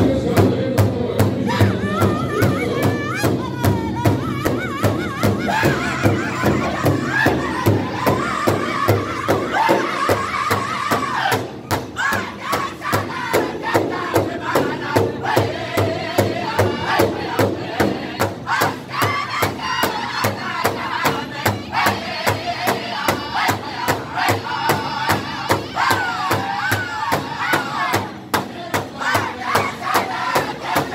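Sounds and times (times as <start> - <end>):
group singing high-pitched in unison: 0.0 - 30.9
large drum steady beat: 0.0 - 30.9.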